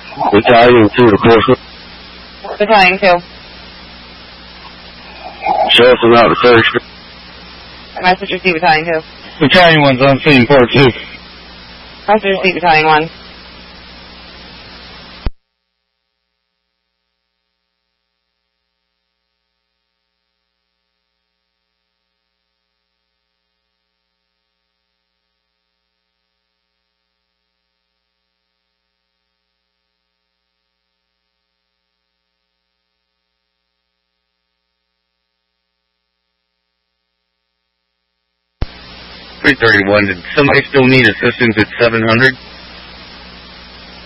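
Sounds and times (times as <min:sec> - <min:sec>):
radio scanner hiss: 0:00.0 - 0:15.4, 0:38.5 - 0:44.0
faint electrical hum: 0:00.0 - 0:44.0.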